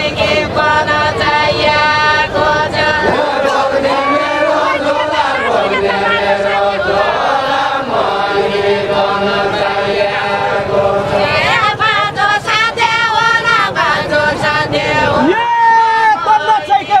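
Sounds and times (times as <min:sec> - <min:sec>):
group of voices chanting: 0:00.0 - 0:17.0
woman singing: 0:00.2 - 0:07.2.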